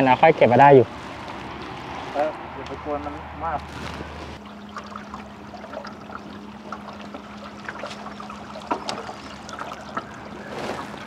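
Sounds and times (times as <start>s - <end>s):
steady low hum: 0.8s - 11.0s
water lapping around a boat: 3.7s - 11.0s.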